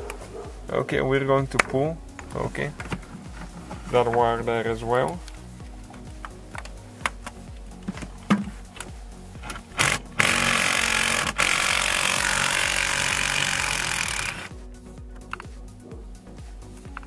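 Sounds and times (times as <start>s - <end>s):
background music: 0.0s - 17.0s
parts clicking: 5.0s - 14.5s, 15.1s - 15.5s
impact wrench running: 9.4s - 14.5s.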